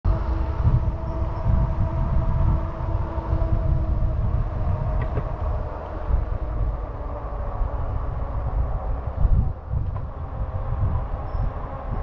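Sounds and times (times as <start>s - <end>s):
electric hub motor whine: 0.1s - 12.0s
wind buffeting microphone: 0.1s - 12.0s.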